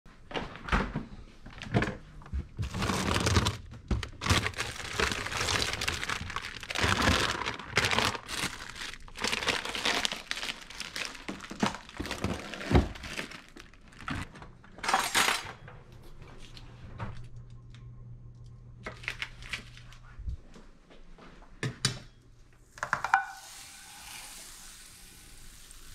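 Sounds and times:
refrigerator hum: 1.5 - 21.0
plastic packaging crinkling: 2.6 - 15.3, 18.8 - 20.1.

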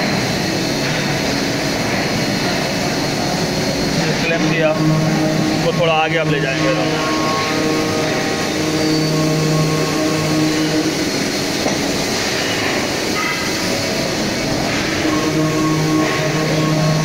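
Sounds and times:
machine humming and rumbling: 0.0 - 17.0.

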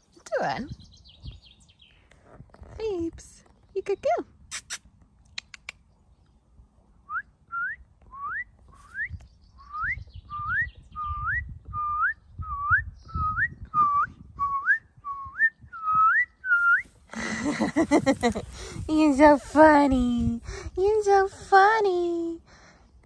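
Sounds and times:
person whistling: 9.8 - 16.9.

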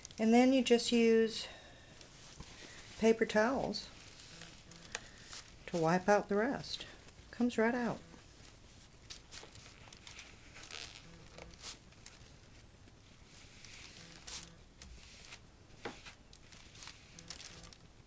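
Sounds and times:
paper towel rubbing and rustling: 2.1 - 6.6, 8.2 - 18.0.

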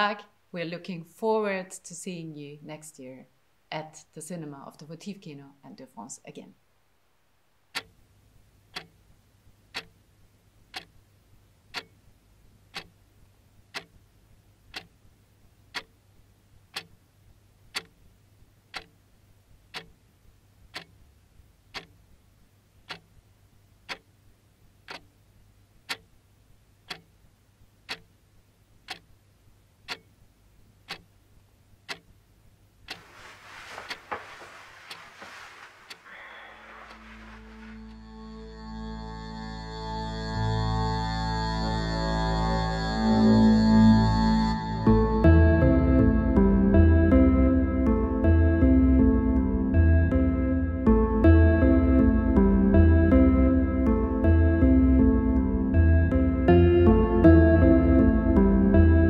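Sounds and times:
soft rustling hiss: 0.0 - 38.1
low steady hum: 0.0 - 59.0
clock ticking: 7.6 - 8.0, 8.7 - 10.0, 10.6 - 11.1, 11.7 - 12.0, 12.7 - 13.0, 13.7 - 14.0, 14.7 - 15.0, 15.7 - 16.0, 16.6 - 17.0, 17.7 - 18.0, 18.6 - 19.0, 19.6 - 20.0, 20.6 - 21.0, 21.6 - 22.0, 22.8 - 24.2, 24.8 - 25.2, 25.8 - 26.2, 26.8 - 29.2, 29.8 - 31.2, 31.8 - 32.2, 32.8 - 37.9.

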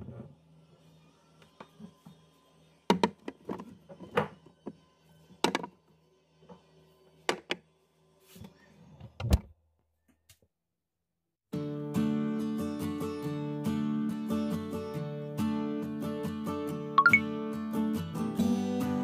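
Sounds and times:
acoustic guitar music: 11.6 - 19.0.

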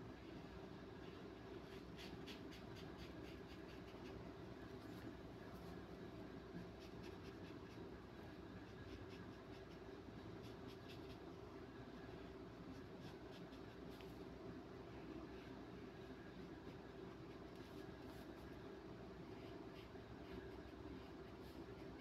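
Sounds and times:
low background hum: 0.0 - 22.0
paintbrush scratching on paper: 1.0 - 4.2, 6.6 - 8.0, 8.6 - 11.3, 12.7 - 14.2, 15.4 - 18.6, 19.3 - 22.0.

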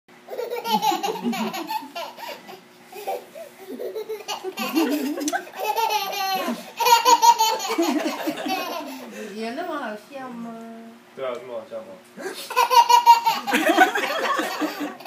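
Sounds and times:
toddler laughing: 0.3 - 9.1, 12.2 - 15.0
adult laughter: 0.5 - 2.4, 3.7 - 9.1, 12.2 - 15.0.

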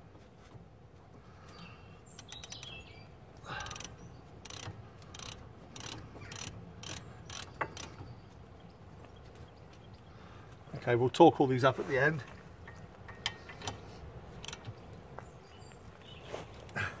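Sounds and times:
ratchet pawl clicking: 2.2 - 2.8, 3.6 - 8.0, 14.4 - 14.6
sharp metallic click: 2.2 - 2.8.

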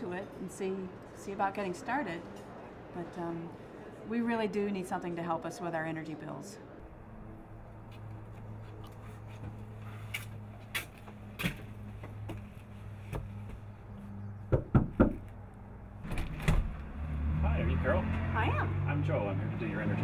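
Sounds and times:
loud knocks on door: 14.5 - 15.2
door opening: 16.0 - 16.8.

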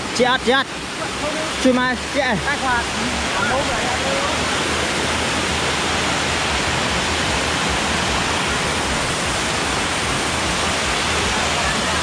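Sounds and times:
waterfall rushing over rocks: 0.0 - 12.0.

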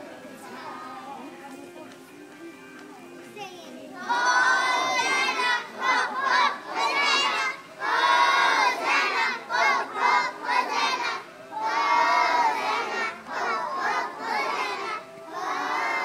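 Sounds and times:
children shouting a song: 3.4 - 16.0.

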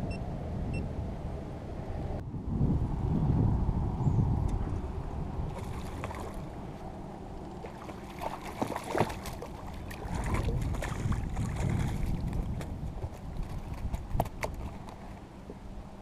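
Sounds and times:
wind rumble on microphone: 0.0 - 16.0
fish splashing at surface: 5.5 - 6.5, 7.6 - 12.6.

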